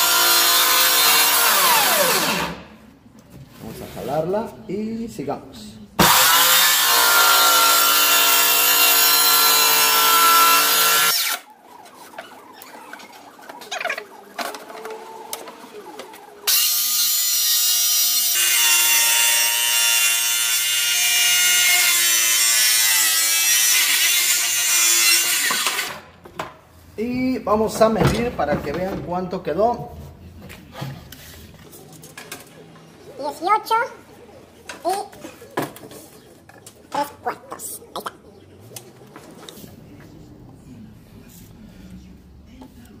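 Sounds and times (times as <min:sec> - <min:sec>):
circular saw cutting wood: 0:00.0 - 0:02.7, 0:06.0 - 0:11.5, 0:14.9 - 0:26.1.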